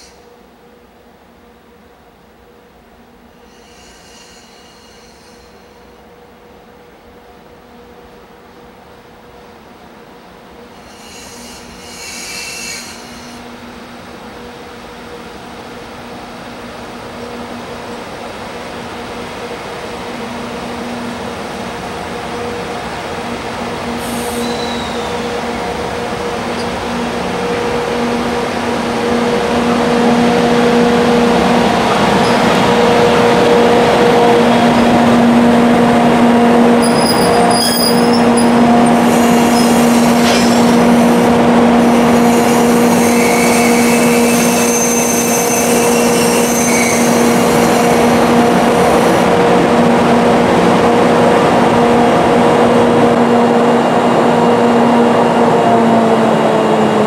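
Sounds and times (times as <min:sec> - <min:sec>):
train rumble: 0:00.0 - 0:57.0
wheel and brake squeals: 0:03.4 - 0:05.8, 0:10.8 - 0:13.4, 0:24.1 - 0:25.3, 0:36.8 - 0:38.5, 0:42.3 - 0:47.9.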